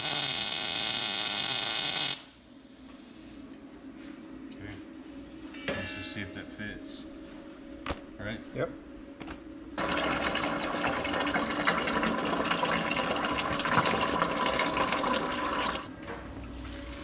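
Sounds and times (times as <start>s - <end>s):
water pouring into a container: 9.8s - 15.9s.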